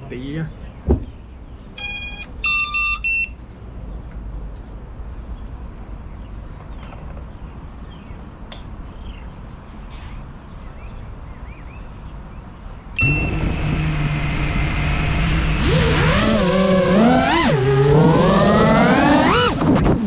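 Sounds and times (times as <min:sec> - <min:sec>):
faint outdoor background noise: 0:00.0 - 0:20.0
drone motors whining: 0:13.0 - 0:20.0.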